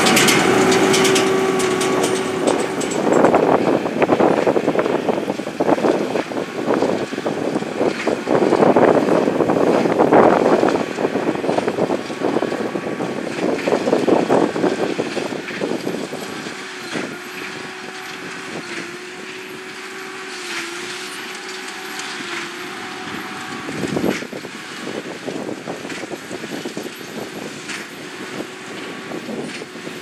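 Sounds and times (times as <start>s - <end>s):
baler clattering: 0.0s - 4.7s
tractor engine under load: 0.0s - 30.0s.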